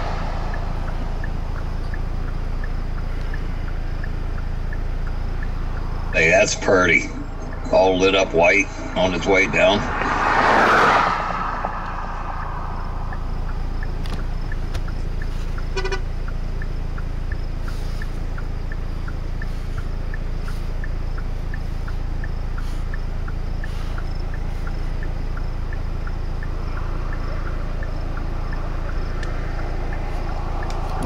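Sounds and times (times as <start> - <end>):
hazard flasher ticking: 0.0 - 8.9
vehicle idling: 0.0 - 31.0.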